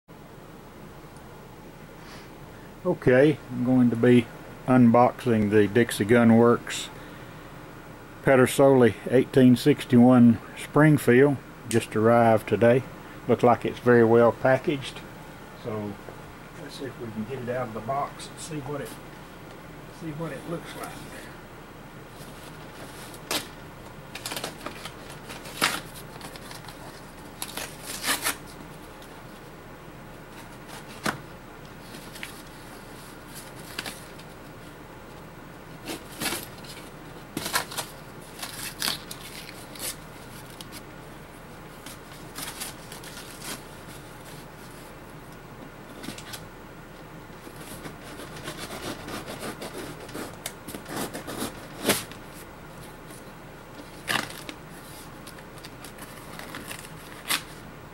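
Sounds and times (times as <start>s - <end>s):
packing tape and cardboard ripping: 22.8s - 28.6s, 35.8s - 40.8s, 41.8s - 44.4s, 47.5s - 52.2s, 53.8s - 57.6s.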